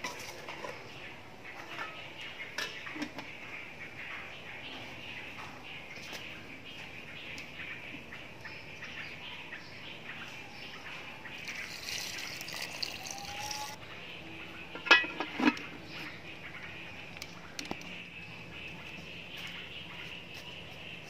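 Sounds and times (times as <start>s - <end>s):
birds chirping: 0.0s - 21.0s
water pouring into pot: 11.4s - 13.8s.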